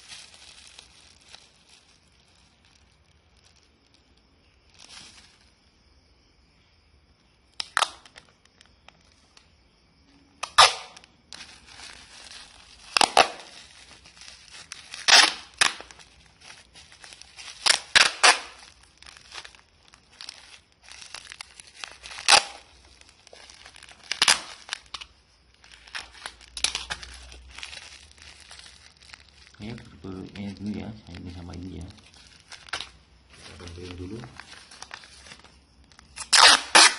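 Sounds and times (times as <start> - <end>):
wrapping material crinkling: 0.0 - 5.6, 7.5 - 9.5, 10.4 - 36.9
tape tearing rips: 7.5 - 8.3, 10.4 - 19.6, 21.0 - 22.7, 23.3 - 25.1, 25.7 - 27.8, 32.0 - 33.6, 34.3 - 36.9.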